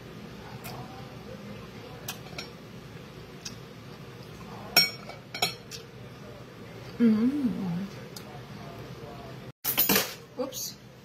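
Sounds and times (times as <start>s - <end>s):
cutlery clinking on a plate: 2.1s - 2.6s, 4.7s - 5.8s, 9.6s - 10.2s.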